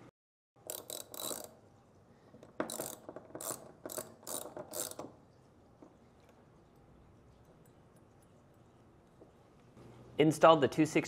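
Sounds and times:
ratchet wrench clicking: 0:00.6 - 0:01.6, 0:02.6 - 0:05.1.

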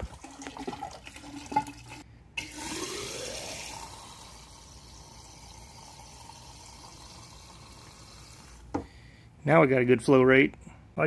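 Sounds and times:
liquid trickling into plastic cylinder: 0:00.0 - 0:03.0.

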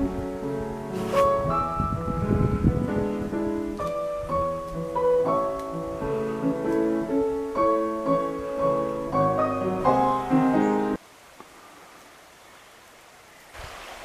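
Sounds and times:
solo classical piano piece: 0:00.0 - 0:11.0.

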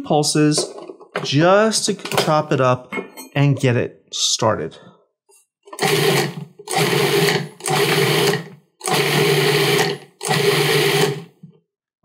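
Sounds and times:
food processor whirring in bursts: 0:05.8 - 0:11.4.

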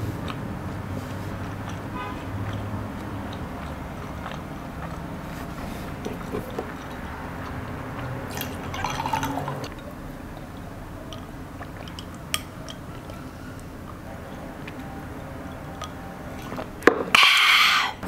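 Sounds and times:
drink pouring into glass: 0:08.3 - 0:09.8.

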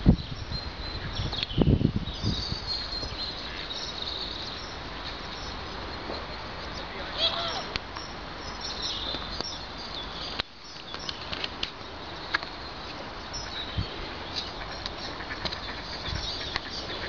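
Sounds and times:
outdoor background noise: 0:00.0 - 0:17.0.

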